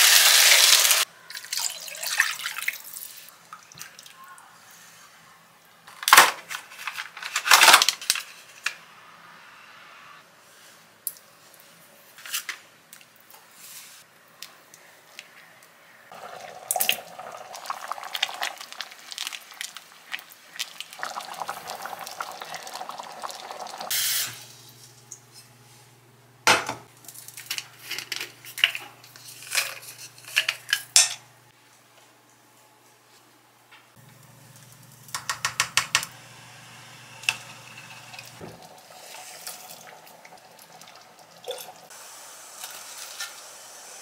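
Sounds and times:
curry simmering and bubbling: 16.1s - 23.9s.

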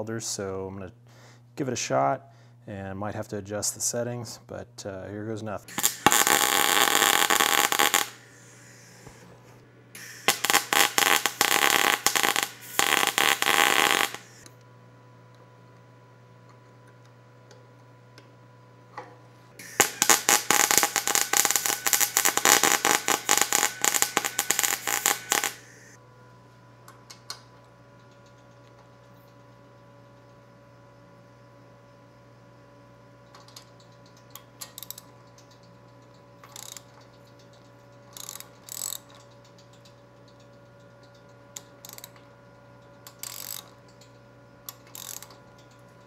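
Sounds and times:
welder arc crackling: 5.7s - 14.4s, 19.6s - 26.0s.

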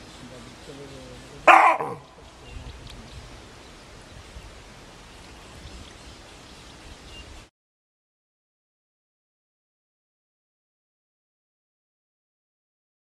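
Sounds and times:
faint outdoor hiss: 0.0s - 7.5s
baboon barking: 1.4s - 2.0s.

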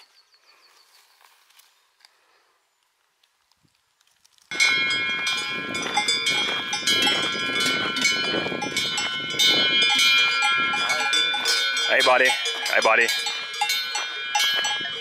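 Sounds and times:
cowbells ringing and clanking: 4.5s - 15.0s.

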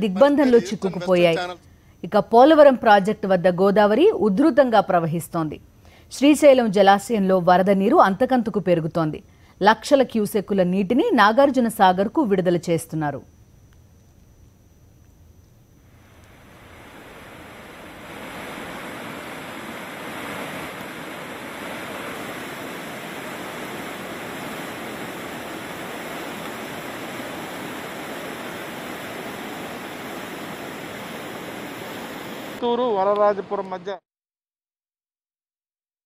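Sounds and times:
floodwater rushing: 16.4s - 32.6s.

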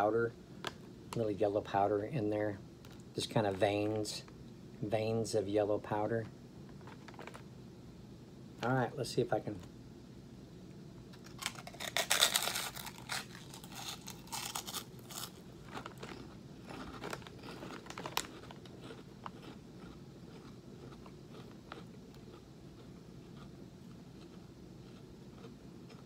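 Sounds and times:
pork skin crunching: 11.2s - 23.5s
quiet chewing: 15.1s - 26.0s.

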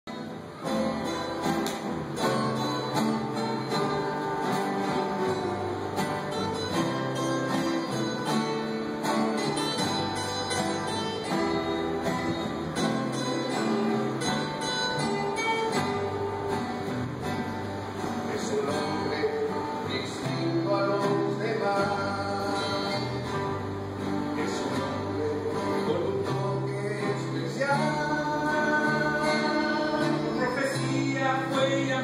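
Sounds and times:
plucked string ensemble playing: 0.3s - 20.9s.

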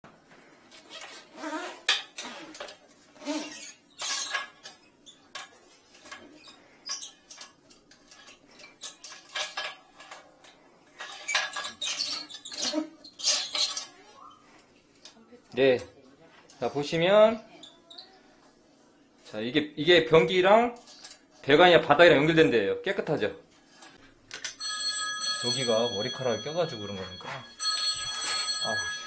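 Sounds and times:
push cable squeaks: 11.1s - 14.4s.

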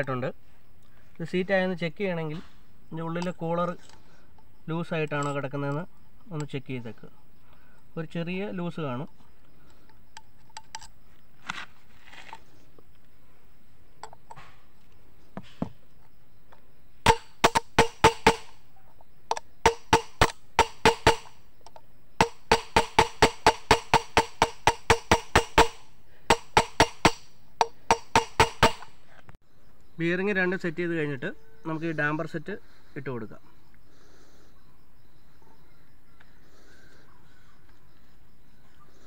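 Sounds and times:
hammer striking metal: 17.1s - 18.6s, 19.7s - 21.4s, 22.2s - 28.9s.

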